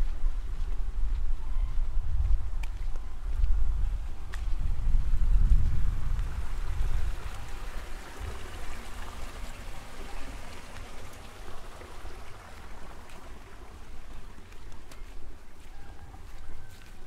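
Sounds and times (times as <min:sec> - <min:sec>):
wind rumbling on microphone: 0:00.0 - 0:17.0
running water rushing: 0:05.9 - 0:17.0.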